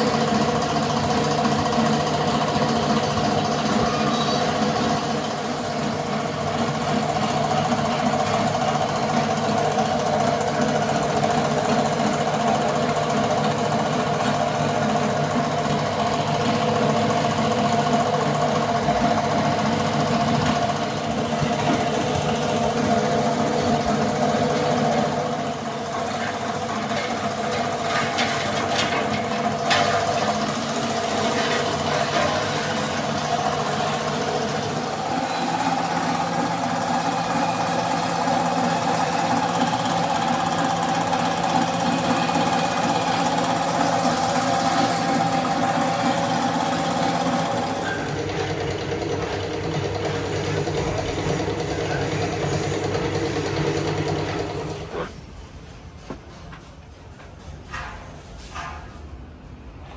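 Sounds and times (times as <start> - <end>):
machine motor running: 0.0 - 55.2
paint spray gun hissing: 20.8 - 23.4, 30.4 - 48.1.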